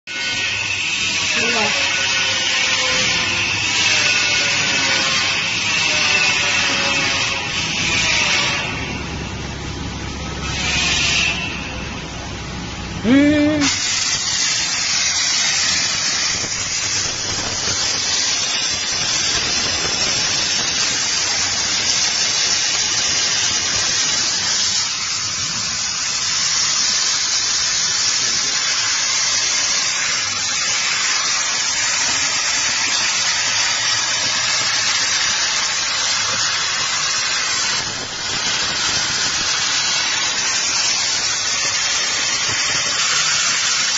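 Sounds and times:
laser cutter high hiss: 13.0s - 43.9s.

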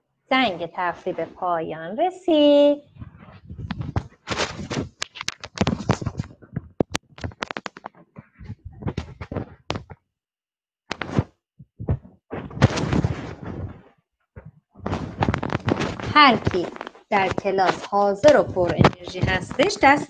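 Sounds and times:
sharp clicks and crackling bursts: 3.0s - 10.0s, 11.9s - 20.0s.

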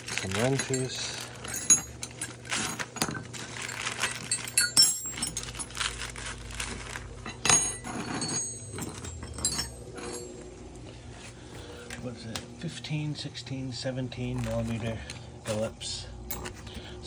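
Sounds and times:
wrenches clinking and jangling: 0.0s - 10.5s.

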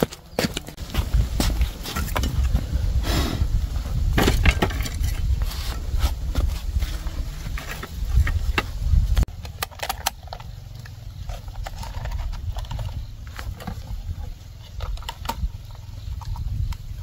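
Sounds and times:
corn kernels clicking and crackling: 9.2s - 13.8s.

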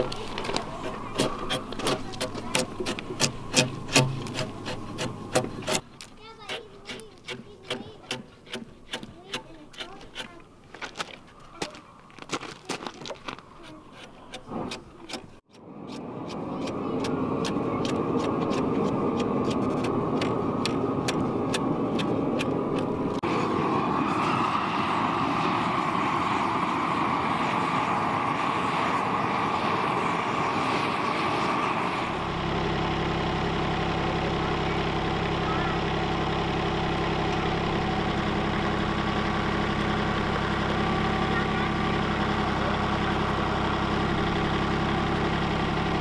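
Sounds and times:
loud steady machine noise: 0.0s - 10.5s, 12.6s - 46.0s
tractor engine idling: 0.0s - 23.2s, 24.9s - 46.0s.

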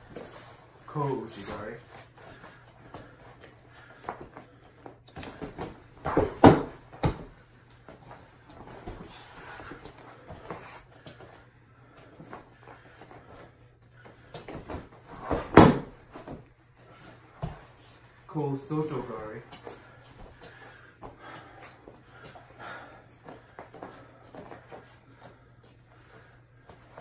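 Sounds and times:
body thudding on mat: 5.2s - 7.4s, 14.4s - 16.4s.

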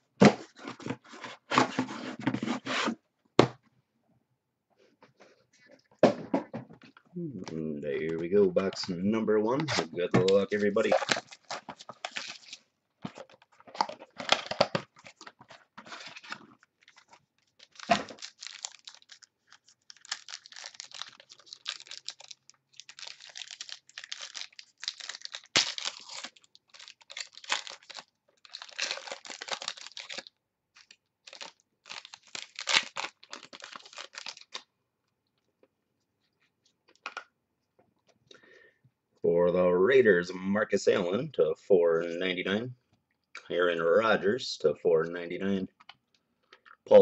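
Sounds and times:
cardboard and wrapping tearing: 9.7s - 12.6s, 14.0s - 34.6s.

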